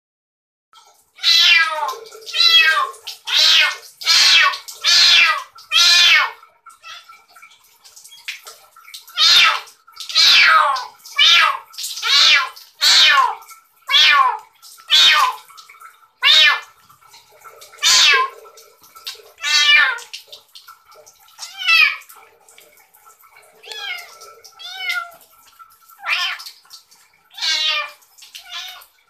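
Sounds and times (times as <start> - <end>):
kitten meowing: 1.2 - 7.0, 10.2 - 15.4, 16.2 - 16.6, 17.8 - 18.3, 19.4 - 20.0, 26.0 - 26.4, 27.4 - 28.8.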